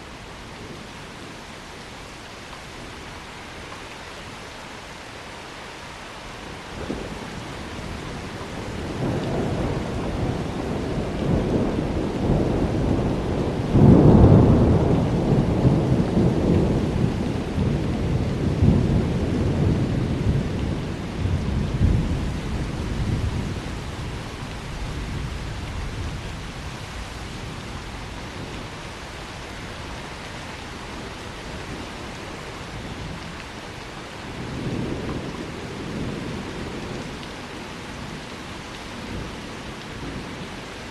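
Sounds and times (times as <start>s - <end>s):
steady rain: 0.0s - 40.9s
thunder rumbling: 6.8s - 26.7s.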